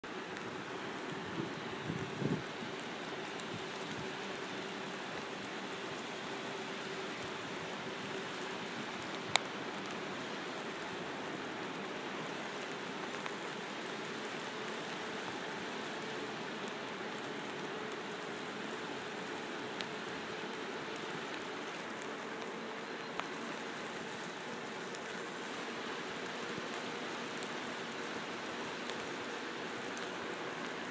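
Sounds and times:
bicycle tyres on wet road: 0.1s - 22.0s.

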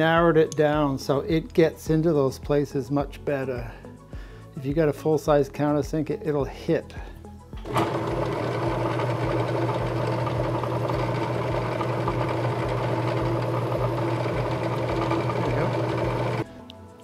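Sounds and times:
drill press switch: 7.6s - 16.4s
drill press motor humming: 7.6s - 16.5s.

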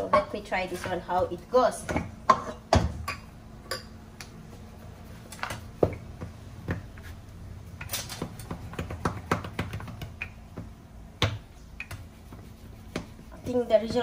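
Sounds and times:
rolling pin knocking on countertop: 8.2s - 10.6s.

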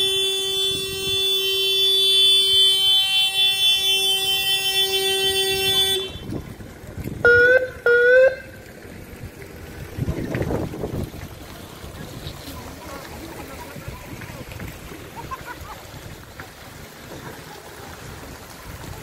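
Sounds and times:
car horn blast: 0.0s - 6.4s.

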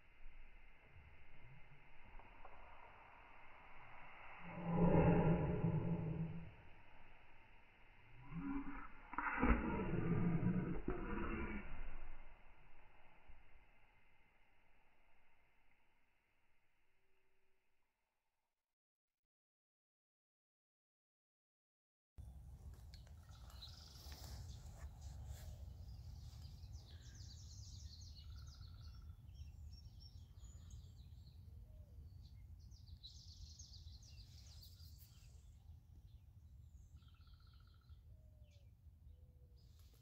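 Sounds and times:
songbirds chirping and trilling: 22.2s - 40.0s.

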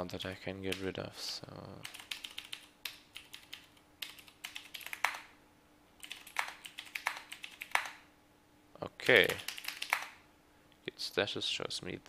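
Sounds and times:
faint steady hum: 0.0s - 12.0s
keyboard keystrokes: 1.8s - 5.3s, 6.0s - 8.0s, 9.2s - 10.1s.

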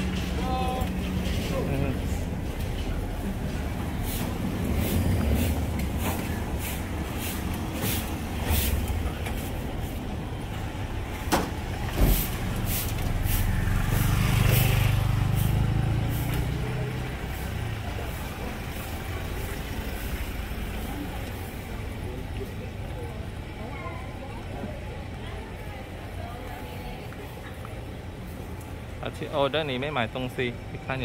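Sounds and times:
street traffic: 0.0s - 31.0s
motor scooter passing: 11.6s - 22.2s.

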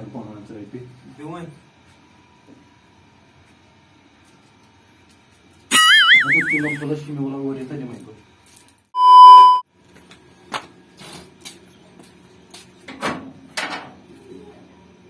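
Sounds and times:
electronic beep: 9.0s - 9.6s.

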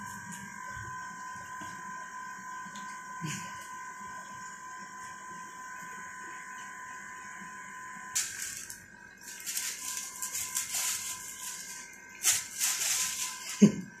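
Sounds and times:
faint high whine: 0.0s - 14.0s
plastic bags crinkling: 8.2s - 13.8s.

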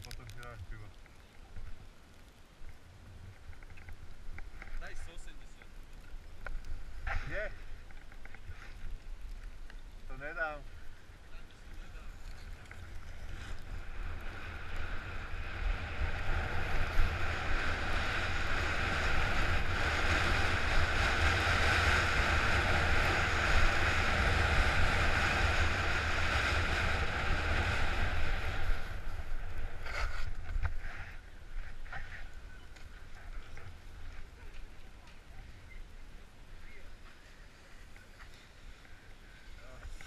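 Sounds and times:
wind buffeting microphone: 10.9s - 36.2s.

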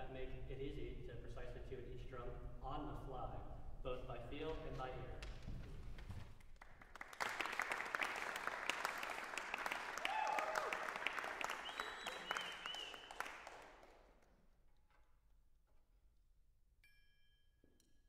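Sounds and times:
audience applauding: 6.6s - 14.2s.

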